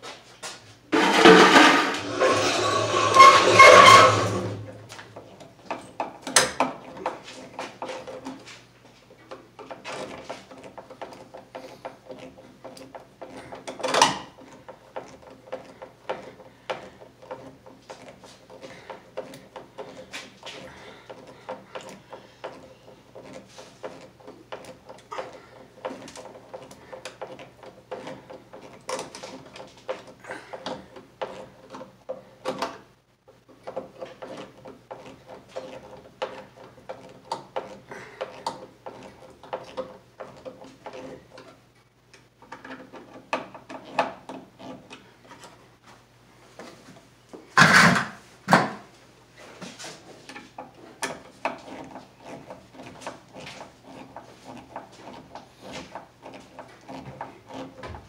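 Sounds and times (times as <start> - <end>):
screw creaking into wood: 1.0 - 4.6.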